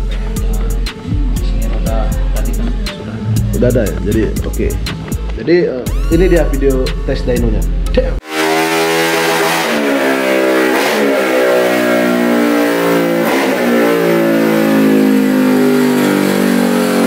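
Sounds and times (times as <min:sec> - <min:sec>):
motorcycle engine revving hard: 0:08.2 - 0:17.0.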